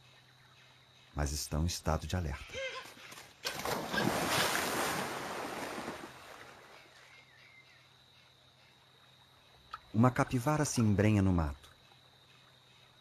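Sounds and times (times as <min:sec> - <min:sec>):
animal splashing through water: 0:03.1 - 0:06.8.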